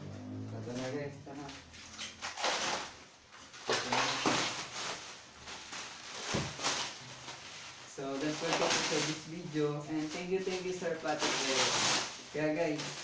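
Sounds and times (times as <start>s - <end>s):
plastic wrap crinkling and tearing: 0.6s - 13.0s.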